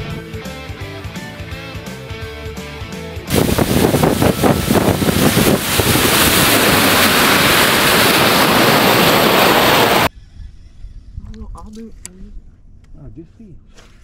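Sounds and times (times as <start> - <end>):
water rushing past boat hull: 3.3 - 10.1
wind buffeting microphone: 3.3 - 12.4.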